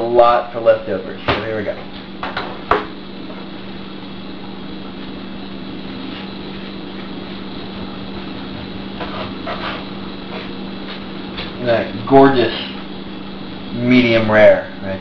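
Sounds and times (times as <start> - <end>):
background hum: 0.0 - 15.0.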